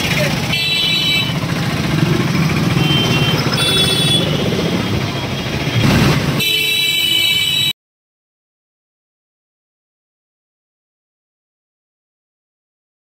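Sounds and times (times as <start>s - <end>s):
busy street traffic: 0.0s - 7.8s
vehicle horns honking: 0.3s - 1.6s, 2.7s - 7.8s.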